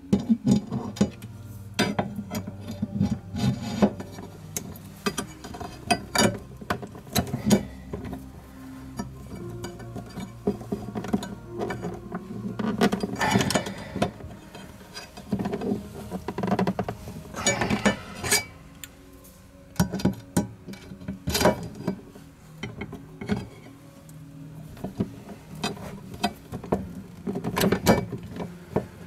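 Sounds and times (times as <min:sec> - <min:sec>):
metal parts rattling: 0:01.8 - 0:08.3, 0:08.9 - 0:18.5.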